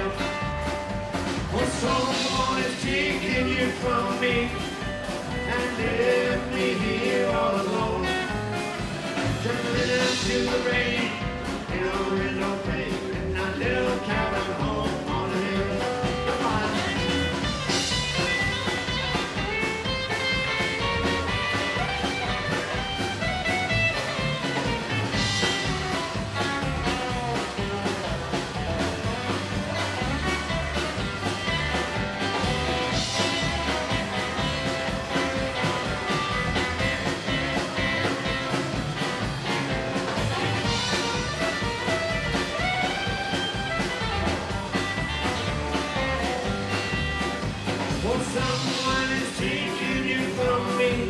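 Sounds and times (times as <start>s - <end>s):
rockabilly band playing: 0.0s - 51.0s.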